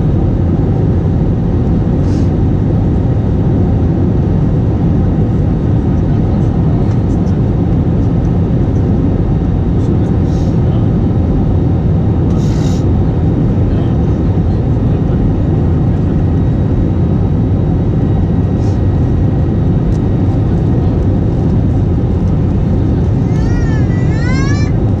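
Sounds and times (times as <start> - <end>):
airliner cabin engine rumble: 0.0 - 25.0.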